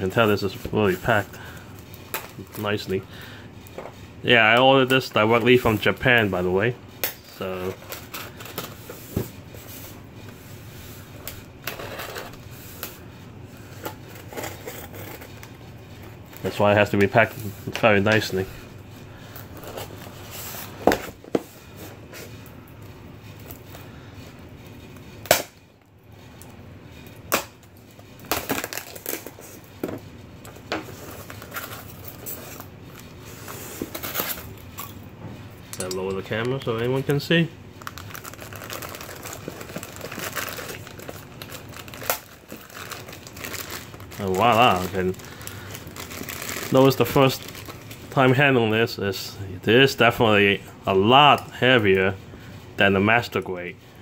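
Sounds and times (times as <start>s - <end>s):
styrofoam crackling and rustling: 28.2s - 29.7s, 30.6s - 34.6s, 36.2s - 48.4s.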